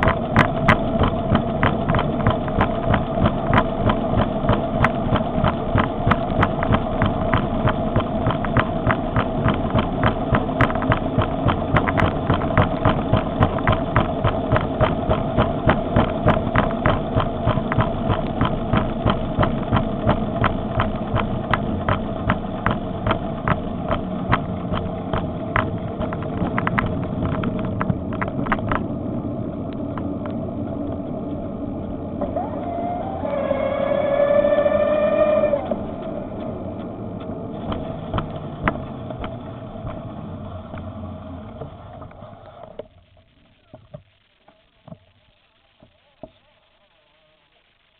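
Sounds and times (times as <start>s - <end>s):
sharp regular ticking: 0.0s - 28.9s
electric bicycle motor whine: 28.9s - 36.4s
loud multi-pitched squeal: 32.2s - 35.9s.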